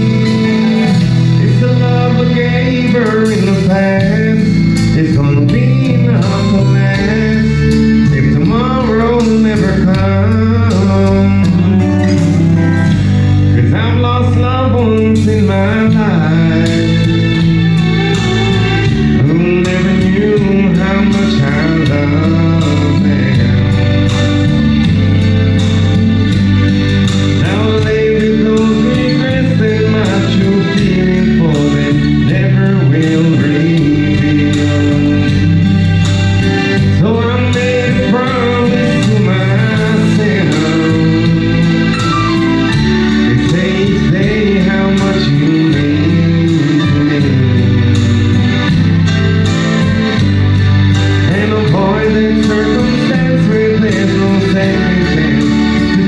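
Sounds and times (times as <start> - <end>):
man singing country song: 0.0 - 25.0, 27.1 - 56.0
backing music: 0.0 - 56.0.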